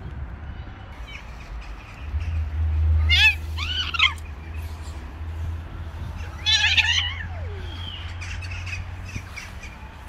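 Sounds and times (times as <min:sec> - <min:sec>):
cat yowling: 0:03.0 - 0:04.2, 0:06.3 - 0:07.8.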